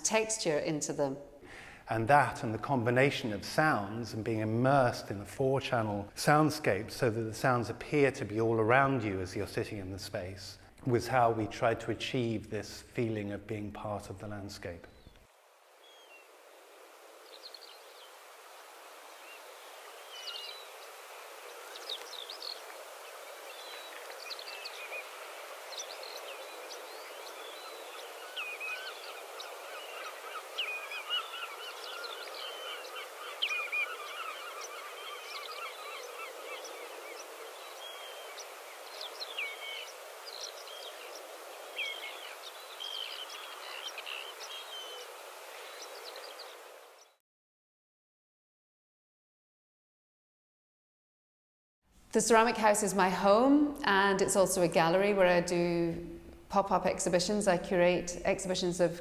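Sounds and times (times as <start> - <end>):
steady outdoor background noise: 1.5 - 47.1
small birds chirping: 14.6 - 16.3, 17.2 - 47.2.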